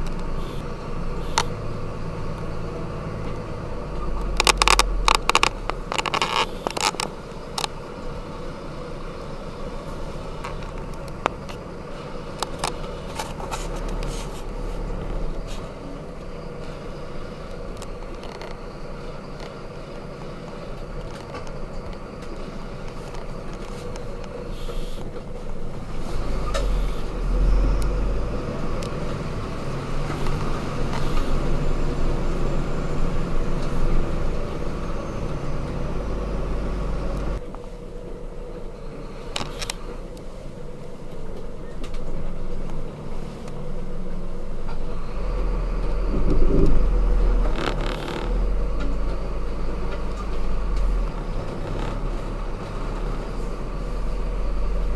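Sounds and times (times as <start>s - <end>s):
truck diesel engine running: 0.0s - 54.9s
sharp clatters and scrapes: 12.5s - 14.8s.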